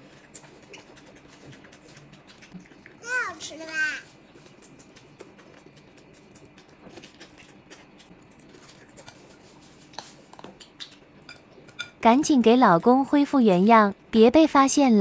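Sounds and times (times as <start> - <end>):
chewing and biting: 0.0 - 11.9.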